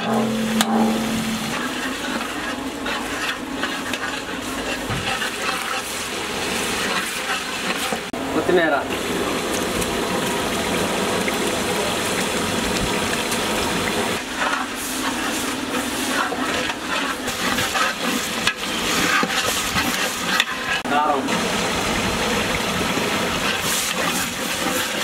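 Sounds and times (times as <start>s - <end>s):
metal ladle stirring: 0.0s - 8.1s, 14.2s - 20.9s
broth bubbling in a pot: 0.0s - 25.0s.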